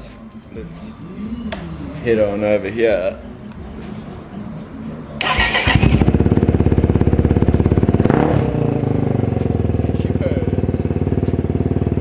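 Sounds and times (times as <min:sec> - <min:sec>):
motorcycle engine cranking: 0:05.2 - 0:07.0
engine revving: 0:05.2 - 0:12.0
motorcycle engine idling: 0:05.2 - 0:12.0.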